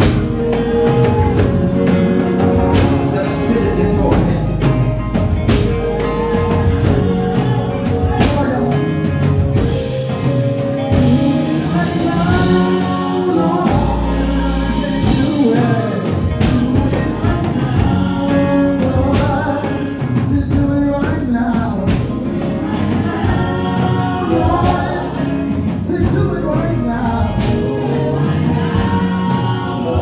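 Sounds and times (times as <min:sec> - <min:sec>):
instrumental backing: 0:00.0 - 0:30.0
man singing: 0:00.0 - 0:30.0
percussion beat: 0:00.0 - 0:30.0
woman singing: 0:10.8 - 0:30.0.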